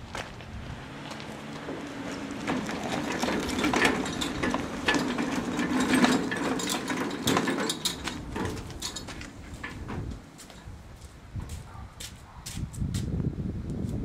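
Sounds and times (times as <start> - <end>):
casters rumbling on concrete: 1.2 - 10.8
metal frame rattling: 1.6 - 10.7.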